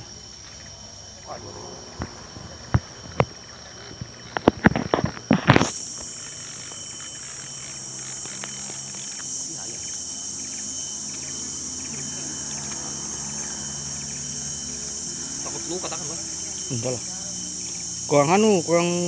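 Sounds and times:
insects chorus: 0.0s - 19.0s
sharp clicks and knocks: 2.0s - 9.3s.

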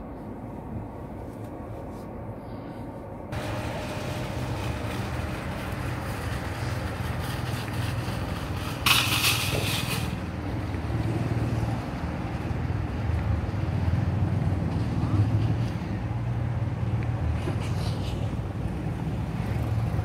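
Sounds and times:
low rumble: 0.0s - 8.9s
hiss: 3.4s - 10.2s.

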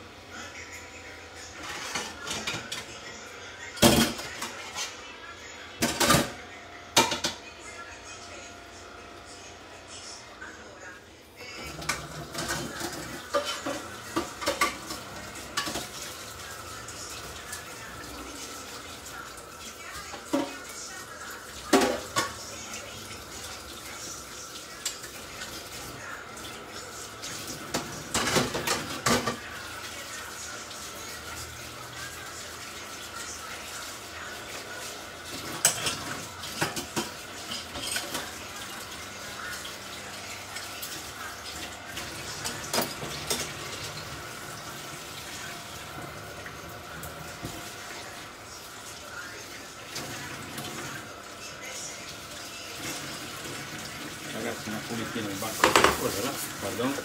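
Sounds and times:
dishes and cutlery clattering: 7.0s - 7.4s, 11.7s - 16.0s, 27.6s - 29.5s, 35.3s - 38.4s, 42.3s - 44.1s, 55.5s - 56.4s.

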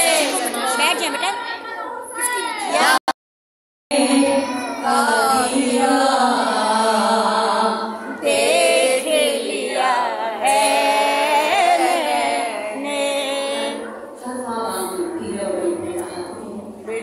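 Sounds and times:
woman singing a chant: 3.9s - 17.0s.

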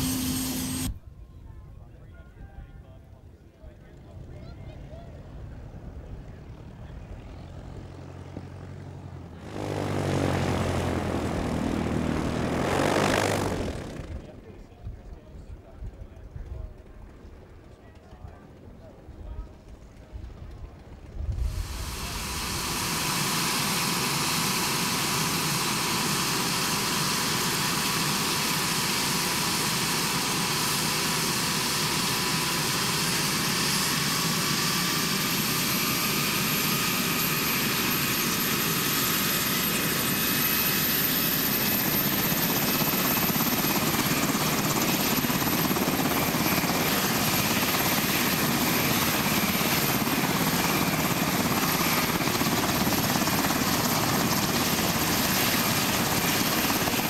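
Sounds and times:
helicopter rotor noise: 0.0s - 1.0s, 3.6s - 57.0s
helicopter turbine whine: 0.0s - 1.2s, 2.2s - 57.0s.

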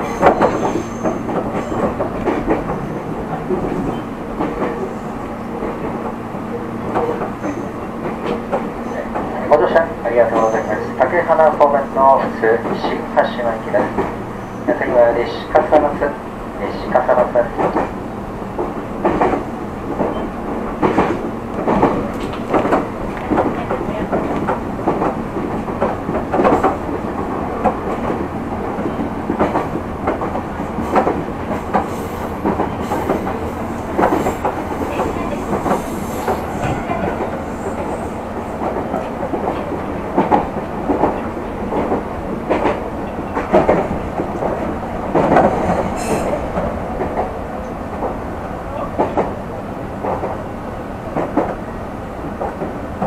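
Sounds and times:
wheels clacking over rail joints: 0.0s - 4.9s, 18.6s - 48.2s
train rumbling inside car: 0.0s - 53.0s.

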